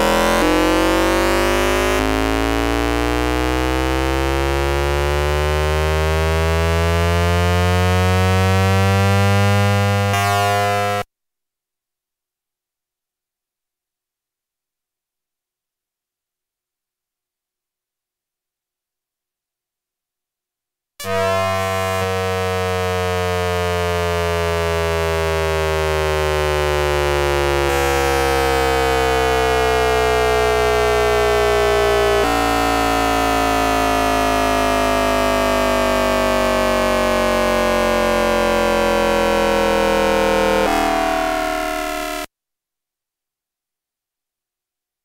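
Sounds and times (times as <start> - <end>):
electronic tones gliding down: 0.0 - 8.8, 21.0 - 42.3.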